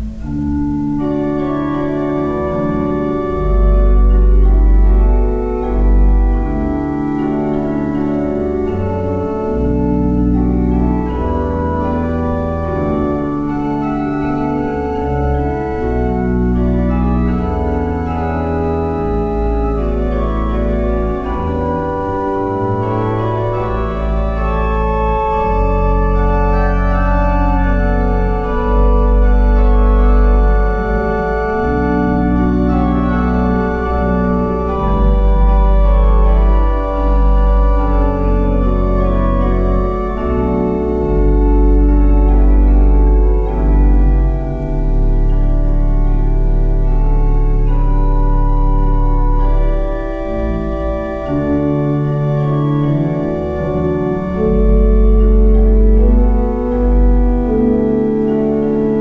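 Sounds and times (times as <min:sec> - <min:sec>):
organ playing chords: 0:00.0 - 0:59.0.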